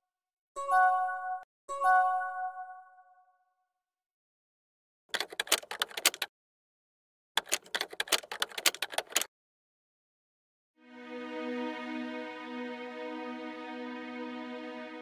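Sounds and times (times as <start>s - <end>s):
keyboard typing clicks: 5.1s - 6.3s, 7.4s - 9.3s.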